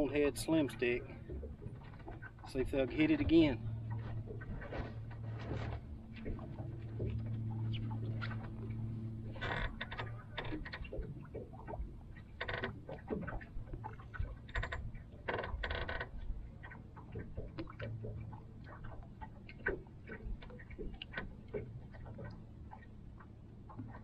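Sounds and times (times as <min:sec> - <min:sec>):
water splashes: 0:00.0 - 0:24.0
waves lapping against boat hull: 0:00.0 - 0:24.0
low rumble: 0:02.5 - 0:12.4.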